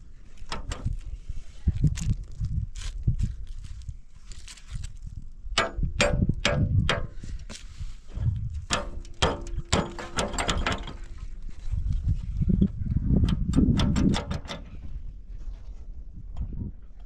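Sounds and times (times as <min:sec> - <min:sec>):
wheelbarrow metallic clicks and knocks: 0:00.4 - 0:01.0, 0:05.6 - 0:11.3, 0:13.2 - 0:14.8.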